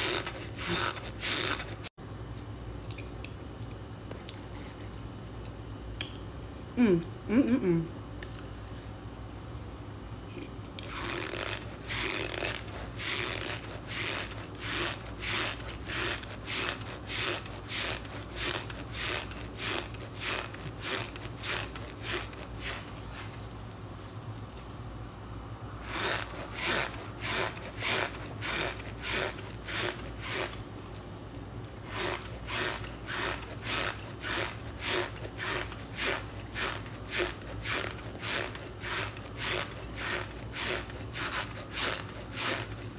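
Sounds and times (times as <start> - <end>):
cornstarch squeaky crunching: 0.0 - 1.9.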